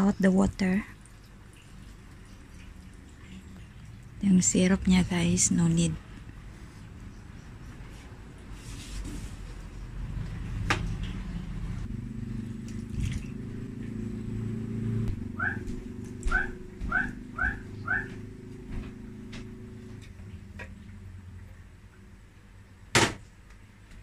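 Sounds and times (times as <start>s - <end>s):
low steady hum: 0.0s - 24.0s
animal rising calls: 14.4s - 19.8s.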